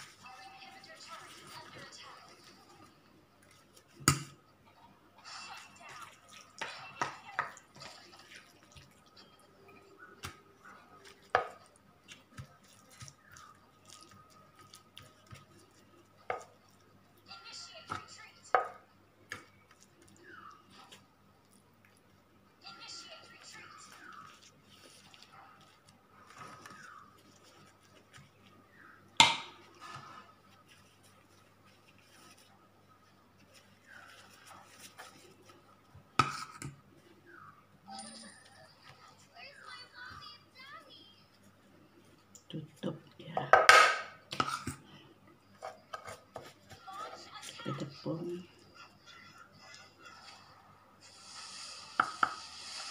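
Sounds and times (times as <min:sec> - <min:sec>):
spatula tapping and scraping a plate: 0:45.6 - 0:46.6.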